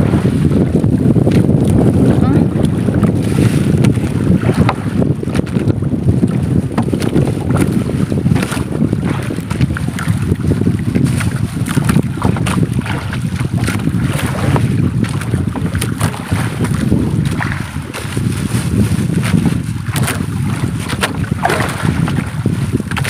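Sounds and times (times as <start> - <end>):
water slapping boat hull: 0.0 - 23.0
wind buffeting microphone: 0.0 - 23.0
splashes and knocks of net hauling: 11.0 - 23.0.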